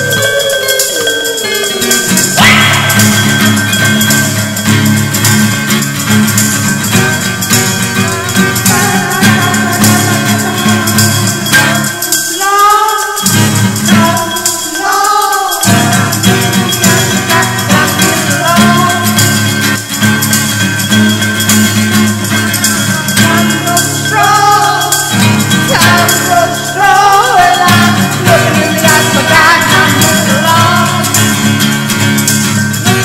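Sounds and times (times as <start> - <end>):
rising and falling melodic line: 0.0 - 11.9.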